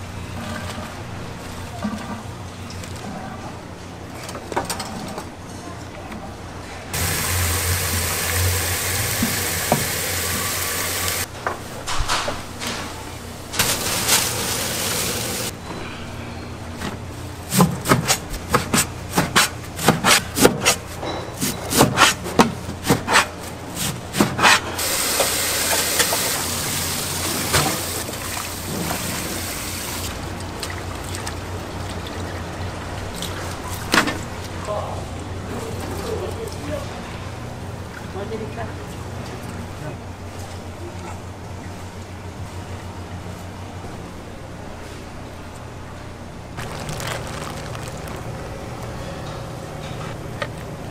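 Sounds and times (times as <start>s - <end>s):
water running from a tap: 7.0s - 11.3s, 13.6s - 15.5s, 24.8s - 30.1s.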